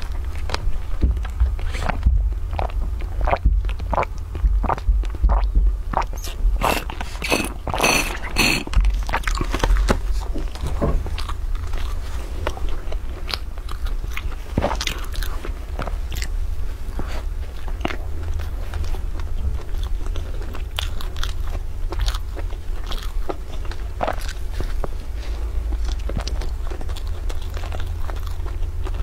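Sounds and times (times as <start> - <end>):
low hum: 0.0 - 9.2
chewing sponge cake: 0.0 - 29.0.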